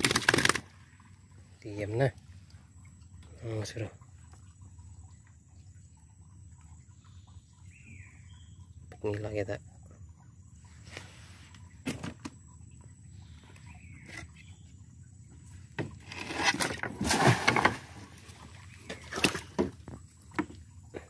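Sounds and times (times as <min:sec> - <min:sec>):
fish flopping and splashing: 0:00.0 - 0:01.6, 0:15.8 - 0:21.0.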